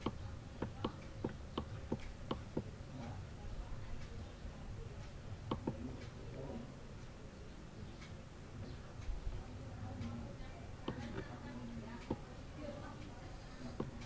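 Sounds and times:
computer mouse clicking: 0.0s - 2.7s, 5.5s - 6.1s, 10.8s - 11.4s, 13.7s - 14.0s.

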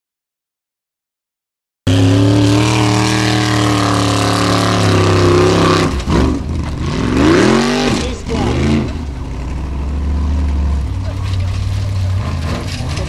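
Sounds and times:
offroad car engine at high revs: 1.9s - 13.0s.

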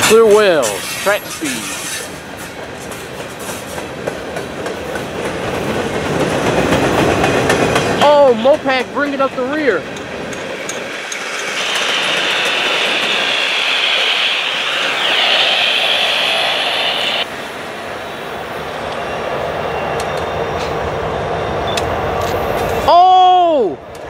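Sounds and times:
approaching train rumble: 0.0s - 22.9s
wheel squeal: 0.6s - 2.2s, 11.1s - 17.2s.

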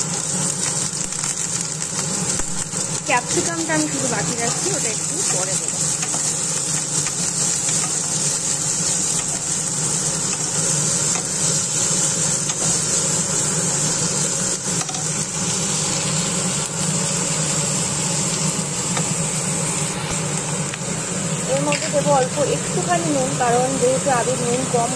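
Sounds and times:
vegetables sizzling in oil: 0.0s - 24.9s.

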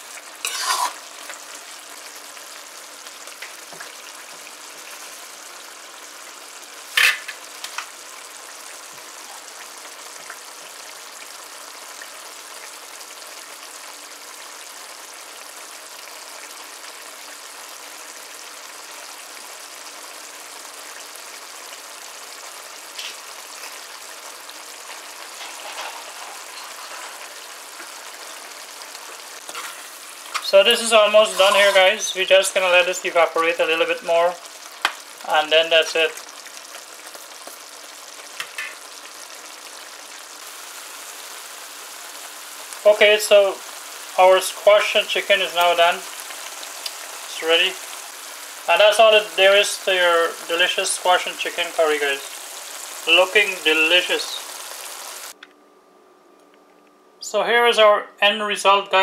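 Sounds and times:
curry simmering and sizzling: 0.0s - 55.4s
spoon clattering in pan: 0.4s - 1.0s.

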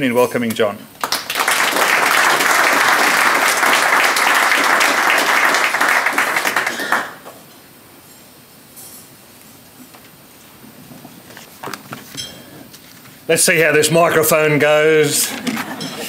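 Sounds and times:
audience applauding: 1.0s - 7.3s.

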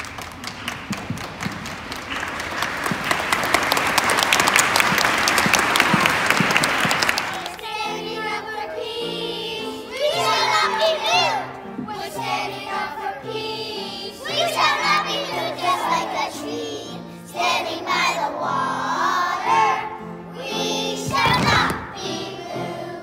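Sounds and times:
children's choir singing: 1.0s - 23.0s.

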